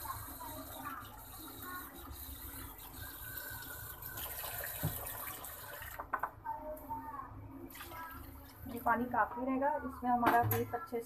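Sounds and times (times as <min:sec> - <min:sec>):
water pouring into pot: 0:00.0 - 0:06.2, 0:07.7 - 0:09.0.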